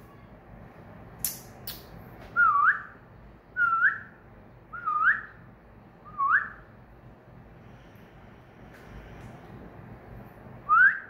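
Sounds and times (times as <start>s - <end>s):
cockatiel whistling: 4.7s - 5.3s, 6.1s - 6.6s.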